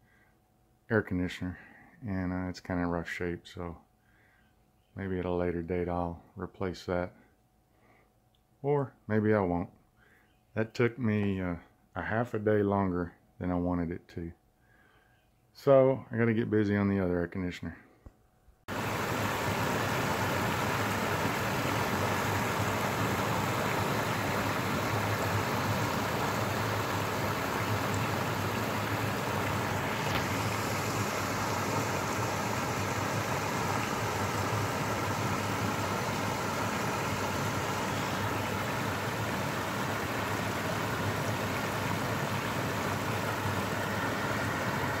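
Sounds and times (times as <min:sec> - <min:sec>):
water rushing over a weir: 0:18.7 - 0:45.0.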